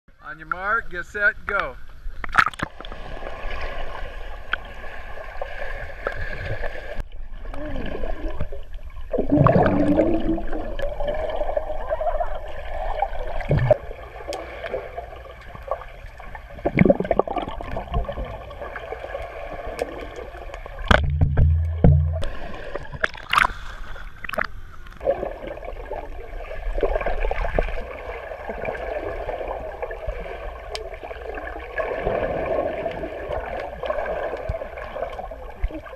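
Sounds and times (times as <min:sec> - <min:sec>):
underwater bubbles and gurgling: 0:01.9 - 0:35.9
sharp knocks or splashes: 0:20.8 - 0:23.6
low thump: 0:20.9 - 0:22.4.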